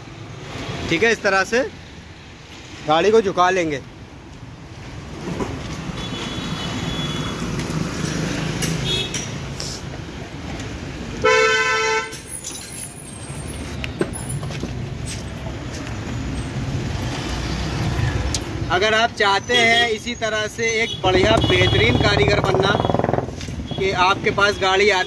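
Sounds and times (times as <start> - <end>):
traffic noise: 0.0 - 25.0
vehicle horn honking: 6.0 - 7.4, 11.2 - 12.2, 20.8 - 23.0.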